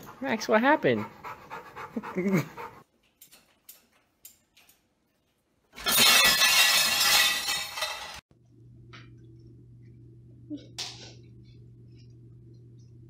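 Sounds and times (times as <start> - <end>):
dishes crashing and breaking: 5.8 - 8.2.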